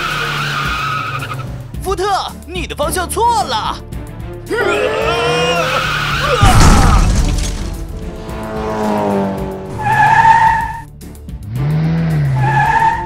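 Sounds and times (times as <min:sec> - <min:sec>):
high tyre squeal: 0:00.0 - 0:01.5, 0:05.4 - 0:06.5, 0:08.5 - 0:10.9, 0:12.0 - 0:13.0
background music: 0:00.0 - 0:13.0
loud cartoon hit: 0:06.4 - 0:08.5.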